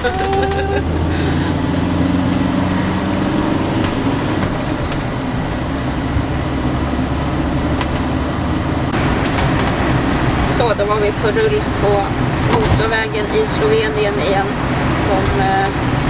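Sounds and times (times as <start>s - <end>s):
tyre and wind noise: 0.0s - 10.5s
diesel engine drone: 0.0s - 16.0s.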